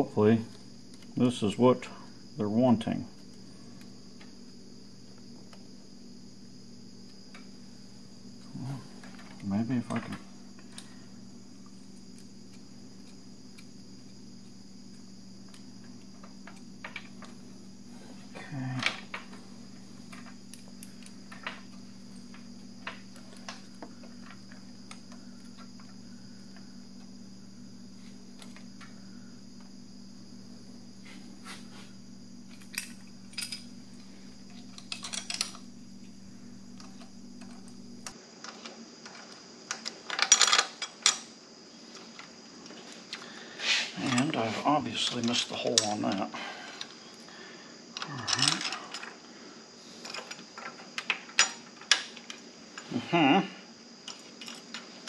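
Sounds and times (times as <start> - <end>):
steady low hum: 0.0 - 38.2.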